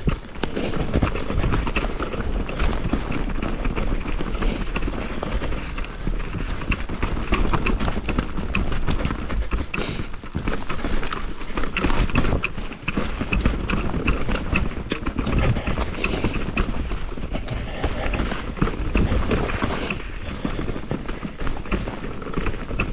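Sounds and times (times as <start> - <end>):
bike clicks and knocks: 0.0 - 22.9
tyres crunching over rock: 0.0 - 22.9
steady low rumble: 12.8 - 22.5.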